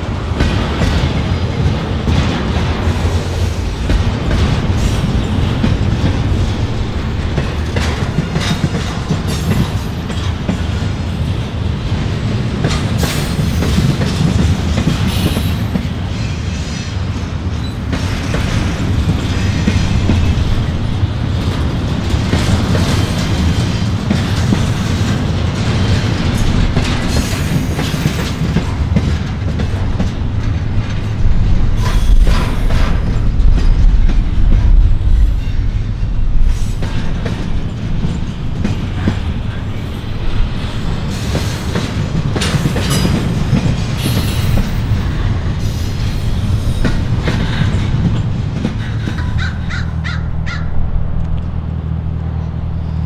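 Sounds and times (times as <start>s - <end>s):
wheels clattering on track: 0.0s - 50.2s
train rumble: 0.0s - 53.0s.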